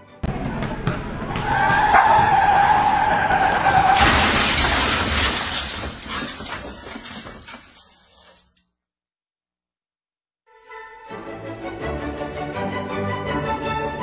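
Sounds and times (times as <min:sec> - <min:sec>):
car crash: 0:00.2 - 0:08.6
car tyres screeching: 0:00.3 - 0:05.0
glass breaking: 0:03.8 - 0:08.6.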